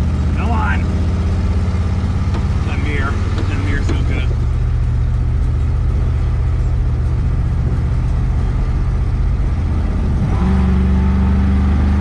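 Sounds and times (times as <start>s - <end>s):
car engine running: 0.0s - 12.0s
wind and road noise: 0.0s - 12.0s
man talking: 0.3s - 0.8s, 2.6s - 4.4s.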